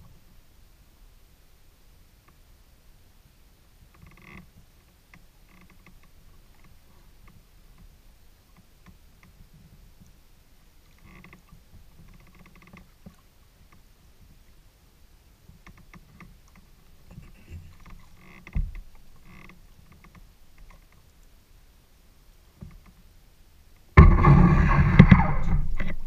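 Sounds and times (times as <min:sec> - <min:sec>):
water against kayak hull: 0:03.7 - 0:26.0
paddle splashes and drips: 0:10.8 - 0:14.6
thump on kayak: 0:24.0 - 0:26.0.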